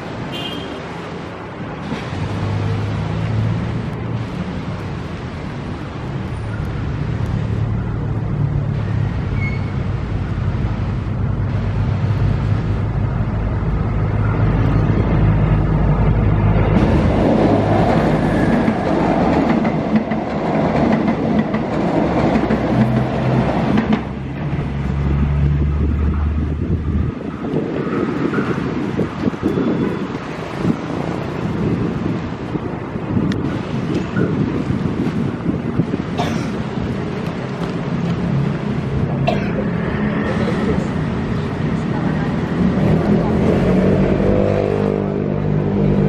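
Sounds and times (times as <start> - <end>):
train engine humming: 1.4 - 46.0
train wheels clattering on rails: 16.1 - 24.3.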